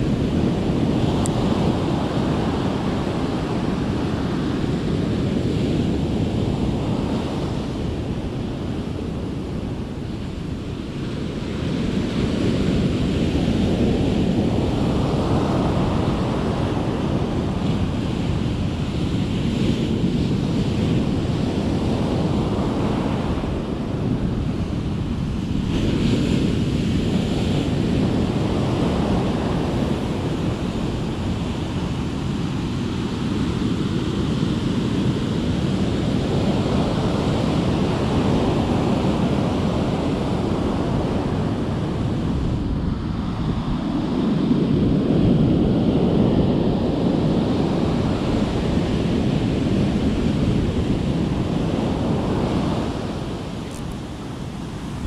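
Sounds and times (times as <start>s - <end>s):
wind on microphone: 0.0s - 55.0s
ocean surf breaking: 21.2s - 55.0s.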